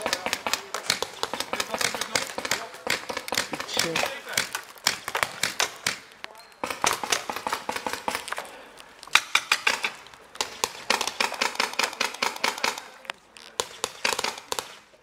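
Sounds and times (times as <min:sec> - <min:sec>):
paintball markers firing: 0:00.0 - 0:15.0.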